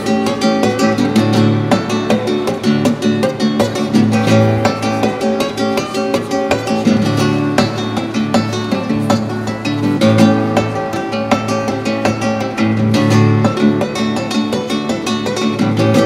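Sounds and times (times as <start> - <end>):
classical guitar playing: 0.0 - 16.0.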